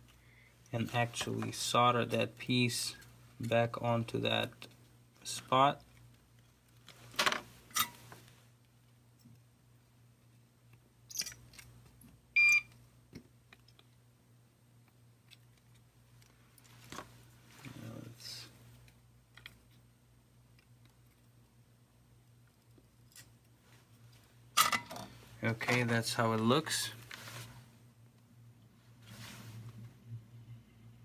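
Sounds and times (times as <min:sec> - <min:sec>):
steady low hum: 0:00.0 - 0:31.0
short electronic beep: 0:12.4 - 0:12.7
soft hiss: 0:15.8 - 0:20.5, 0:21.3 - 0:31.0.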